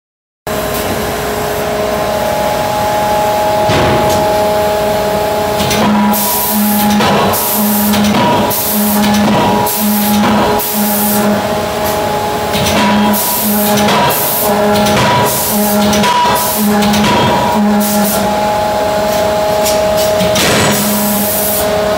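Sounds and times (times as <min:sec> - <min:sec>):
machine hum: 0:00.5 - 0:21.9
hydraulic hissing bursts: 0:05.4 - 0:18.3, 0:20.4 - 0:21.9.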